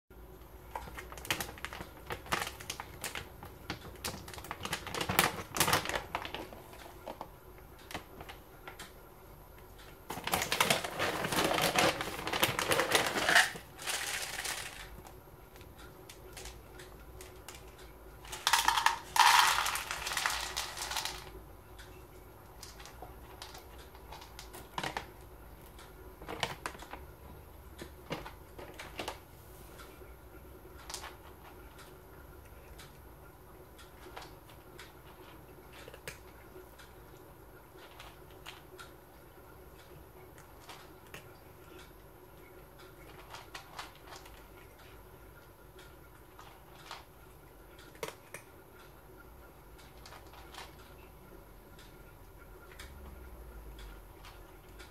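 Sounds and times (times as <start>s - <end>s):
kibble rattling into plastic bowl: 10.1s - 15.0s, 18.3s - 21.3s
plastic bag crinkling: 10.1s - 15.0s, 18.3s - 21.3s.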